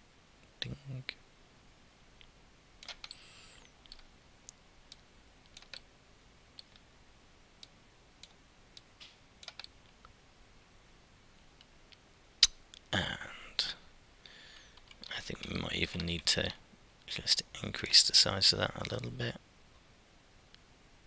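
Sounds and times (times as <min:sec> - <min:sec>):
mouse and keyboard clicks: 0:02.8 - 0:04.1, 0:04.9 - 0:05.8, 0:09.0 - 0:10.0.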